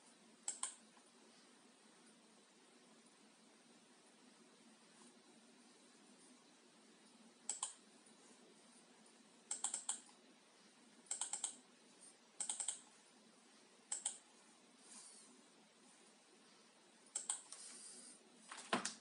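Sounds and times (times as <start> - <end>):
low room hiss: 0.0 - 19.0
keyboard keys clicking: 12.4 - 12.8.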